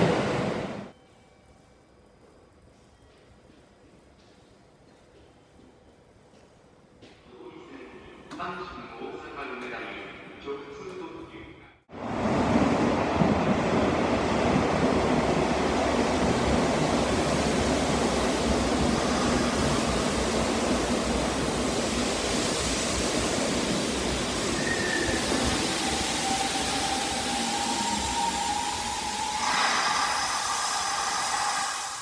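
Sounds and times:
train wheels and air rushing: 11.9s - 32.0s.

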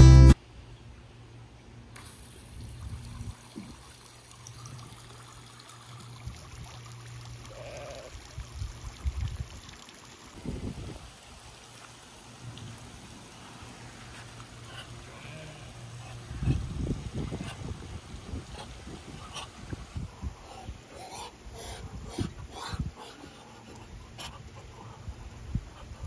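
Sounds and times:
fountain water pattering: 2.0s - 10.4s.

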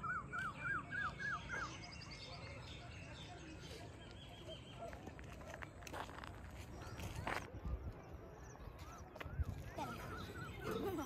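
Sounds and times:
high bird chirps: 6.7s - 11.0s.

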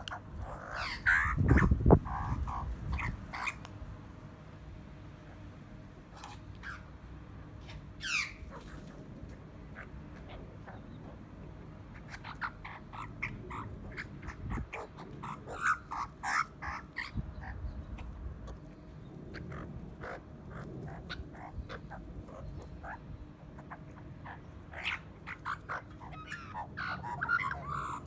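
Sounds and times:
magpies calling harshly: 0.0s - 3.6s, 6.1s - 7.0s, 7.6s - 9.0s, 9.6s - 11.2s, 11.8s - 28.0s.

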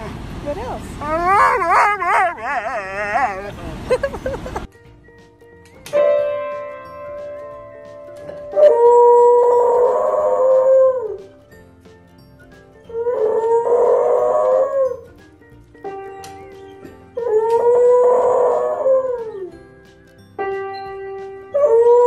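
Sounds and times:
dog howling: 1.0s - 3.6s, 8.5s - 11.3s, 12.9s - 15.0s, 17.2s - 19.5s, 21.5s - 22.0s
piano chord: 4.8s - 22.0s.

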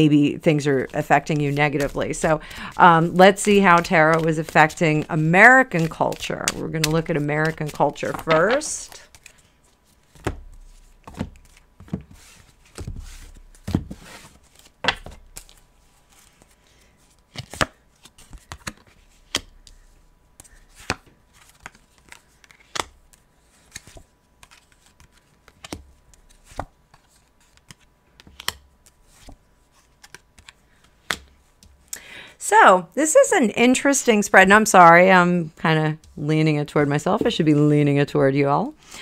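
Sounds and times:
cards rustling: 0.6s - 31.4s.

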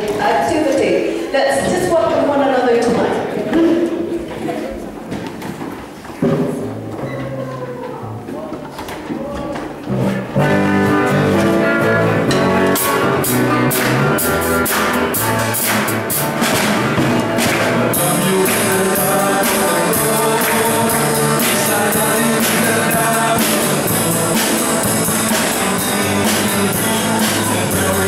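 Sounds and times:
electric guitar: 6.9s - 28.0s
drum kit: 9.8s - 28.0s
man singing into microphone: 17.8s - 28.0s.

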